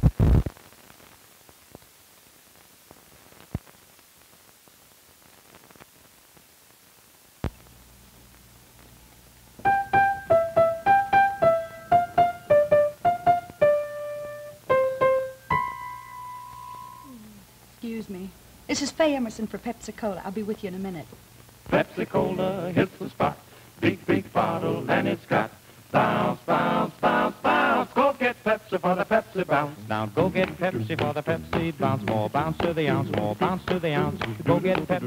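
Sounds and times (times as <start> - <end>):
faint hiss: 0.0 - 35.0
piano melody: 9.6 - 17.2.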